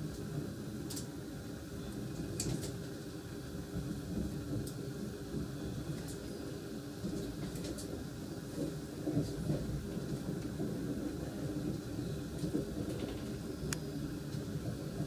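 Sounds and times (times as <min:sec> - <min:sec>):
train running rumble: 0:00.0 - 0:15.0
wheels clicking over rail joints: 0:07.0 - 0:15.0.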